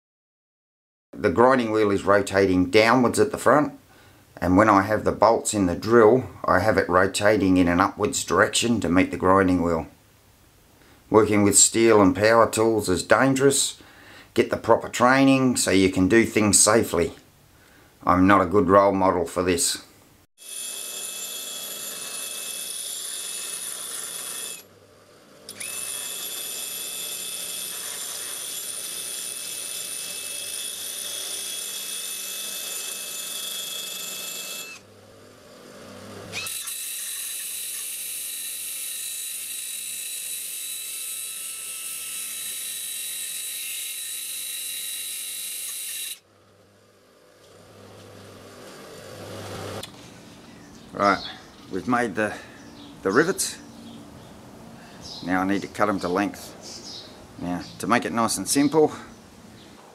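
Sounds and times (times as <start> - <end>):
bench grinder grinding metal: 20.4 - 49.9.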